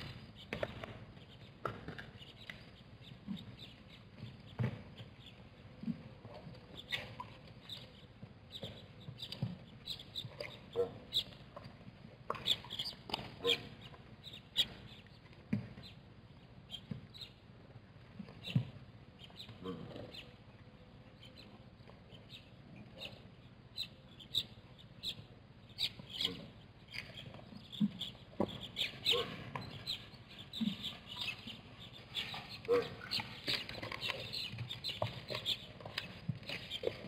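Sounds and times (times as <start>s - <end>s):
small birds chirping: 0.0s - 17.5s, 18.2s - 37.0s.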